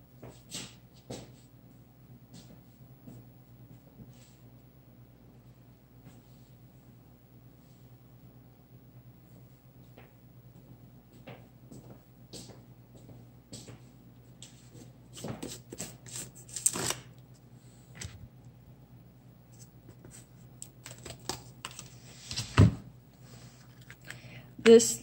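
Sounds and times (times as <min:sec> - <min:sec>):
craft supplies rustling and clicking: 0:23.6 - 0:24.2.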